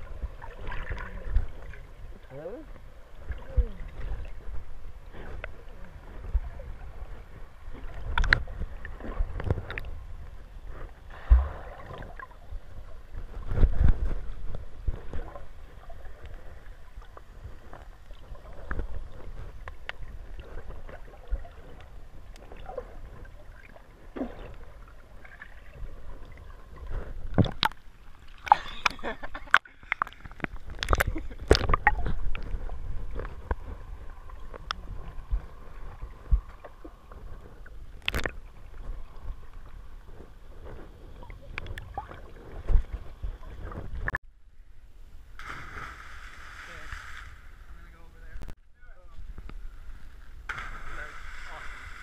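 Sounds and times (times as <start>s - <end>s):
muffled underwater rumble: 0.0s - 52.0s
underwater thumps and knocks: 26.8s - 27.8s.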